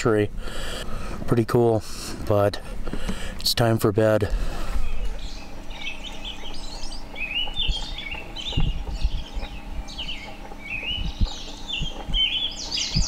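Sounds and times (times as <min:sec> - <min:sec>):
songbirds chirping: 0:00.0 - 0:13.0
low thumps: 0:07.0 - 0:12.3.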